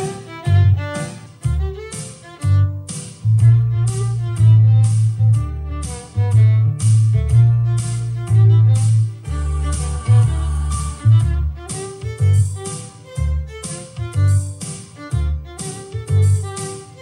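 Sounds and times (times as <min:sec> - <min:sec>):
backing track with bass and beat: 0:00.0 - 0:17.0
violin playing pop melody: 0:00.0 - 0:17.0.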